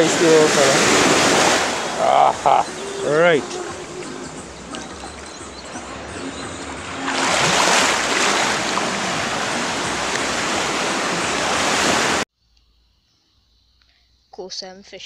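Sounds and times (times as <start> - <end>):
shallow surf washing in: 0.0 - 5.0, 6.9 - 12.2.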